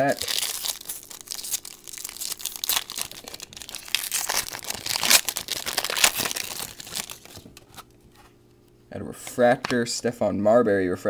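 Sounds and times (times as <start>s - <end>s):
card pack wrapper tearing and crinkling: 0.0s - 7.9s.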